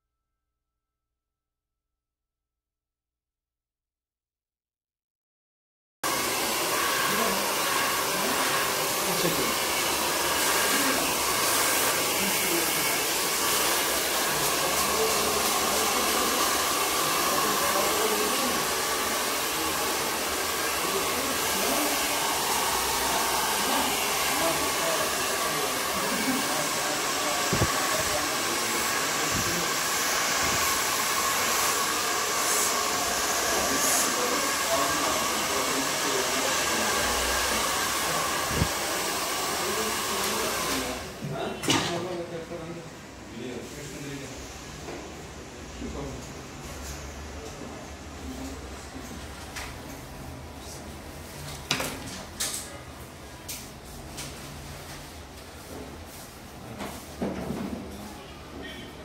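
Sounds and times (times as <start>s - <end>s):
hair dryer blowing: 6.0s - 41.2s.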